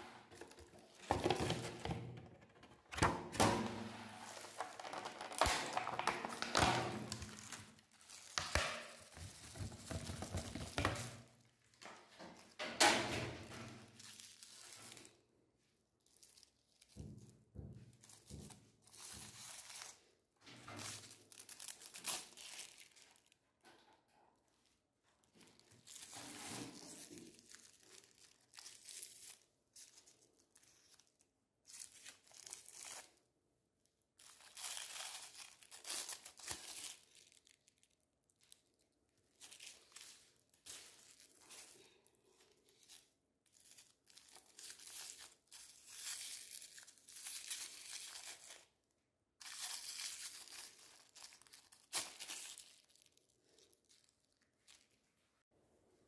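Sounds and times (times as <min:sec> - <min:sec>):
crinkly wrapper being torn: 0:04.2 - 0:09.9, 0:13.8 - 0:15.2, 0:16.0 - 0:17.0, 0:20.8 - 0:23.4, 0:25.2 - 0:55.2.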